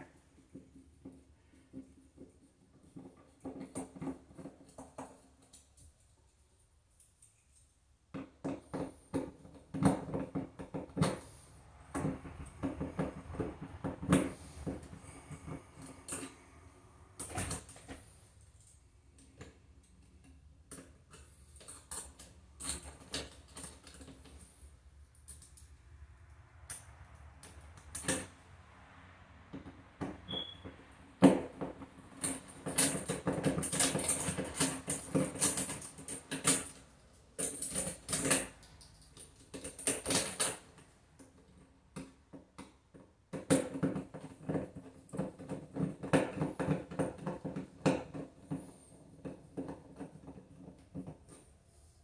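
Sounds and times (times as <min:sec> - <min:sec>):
short squeak: 0:30.2 - 0:30.6
screws and metal hardware rattling: 0:32.0 - 0:40.8.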